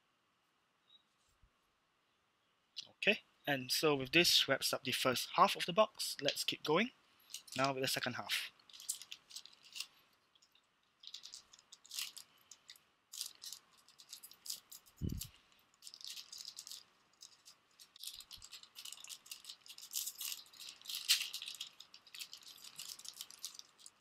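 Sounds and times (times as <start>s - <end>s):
plastic wrapper crinkling: 7.2s - 24.0s.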